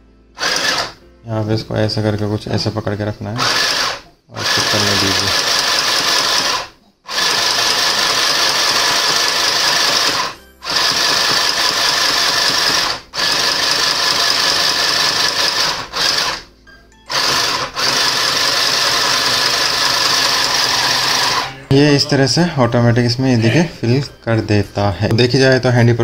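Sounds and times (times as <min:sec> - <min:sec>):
sewing machine motor whining: 0:00.4 - 0:01.0, 0:03.4 - 0:16.5, 0:17.1 - 0:21.7.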